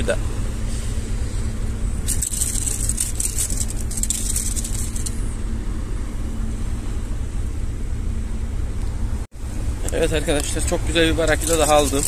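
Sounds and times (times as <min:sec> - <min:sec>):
steady low rumble: 0:00.0 - 0:12.0
rattly scrapes: 0:02.0 - 0:05.4, 0:11.2 - 0:12.0.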